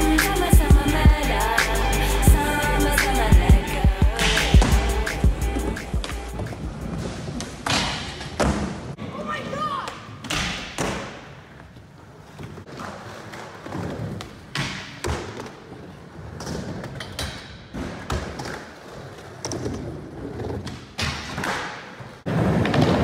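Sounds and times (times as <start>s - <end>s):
skateboard wheels rolling: 4.1s - 8.9s, 11.5s - 23.0s
skateboard clacks and thuds: 16.3s - 23.0s.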